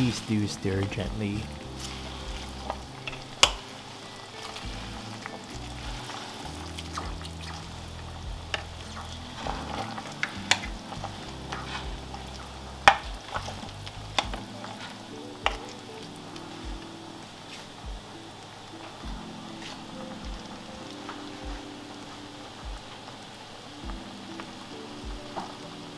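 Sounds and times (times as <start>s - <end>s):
soup bubbling in pot: 0.0s - 16.9s.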